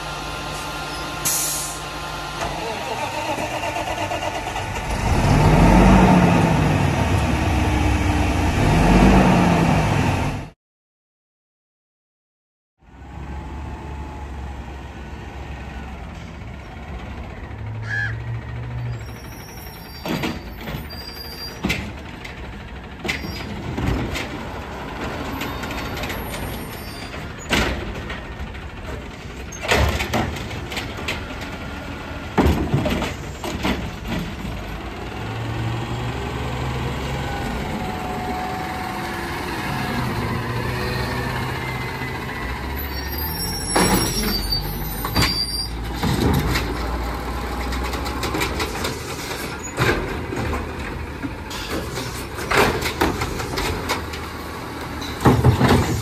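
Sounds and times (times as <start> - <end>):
air brake hisses: 0.6 - 1.8
garbage truck engine running: 15.2 - 56.0
sharp bangs and knocks: 55.0 - 56.0.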